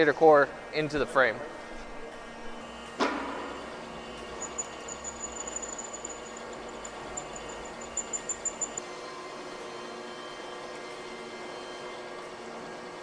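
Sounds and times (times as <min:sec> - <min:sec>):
drill press humming: 0:02.4 - 0:08.8
rapid high ticking: 0:04.4 - 0:08.8.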